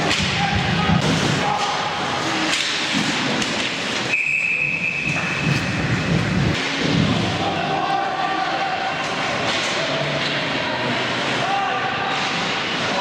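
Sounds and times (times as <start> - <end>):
ice skating: 0.0 - 13.0
people shouting: 0.1 - 2.4, 7.1 - 10.1, 11.3 - 13.0
referee whistle blast: 4.1 - 5.4.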